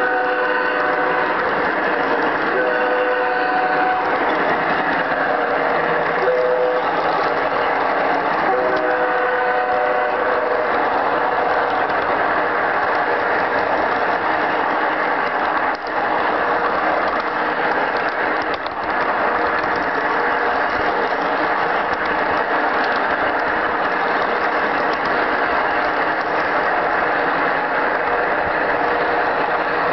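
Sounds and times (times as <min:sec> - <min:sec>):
model train rattling on track: 0:00.0 - 0:29.9.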